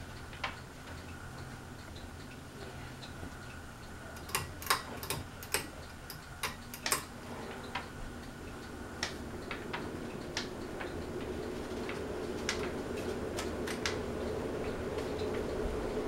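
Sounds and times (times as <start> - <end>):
ceiling fan motor hum: 0.0 - 16.0
fan pull chain clicks: 4.1 - 8.4, 9.0 - 16.0.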